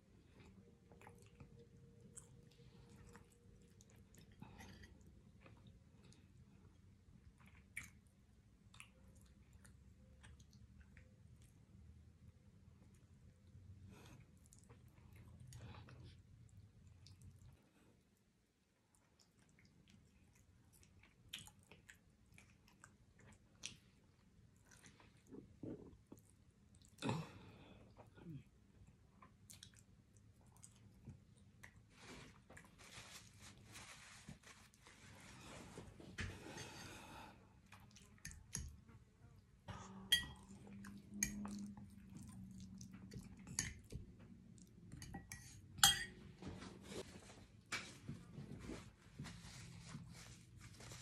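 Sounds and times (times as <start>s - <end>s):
person chewing with mouth clicks: 19.1s - 27.1s, 40.4s - 45.0s.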